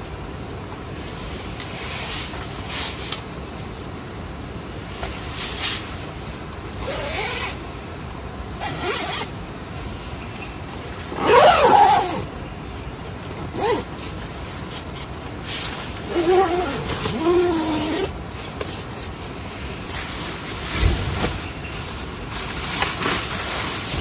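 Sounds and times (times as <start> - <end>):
tent zipper rasping: 6.8 - 7.6, 8.6 - 9.3, 11.1 - 12.3, 13.5 - 14.0, 16.0 - 18.1
heavy rain on a tent: 19.8 - 24.0.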